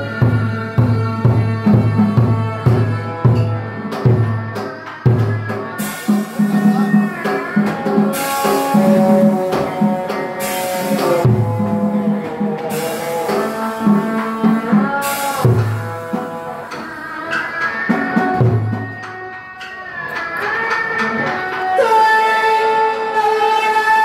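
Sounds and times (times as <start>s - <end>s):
deep drum strokes: 0.1s - 16.8s
cymbal crashes: 0.2s - 19.0s.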